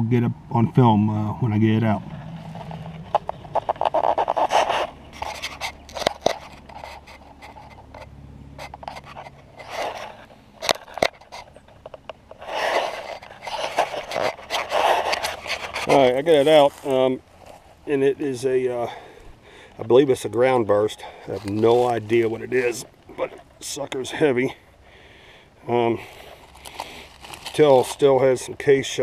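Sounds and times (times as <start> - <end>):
hand tool scraping soil: 1.8 - 11.7, 12.3 - 17.7, 20.9 - 24.1, 26.0 - 29.0.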